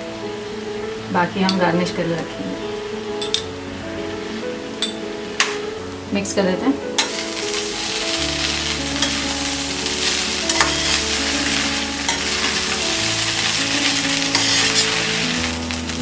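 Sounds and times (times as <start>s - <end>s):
grains sizzling in oil: 0.0s - 16.0s
metal spoon scraping a pan: 7.0s - 15.8s.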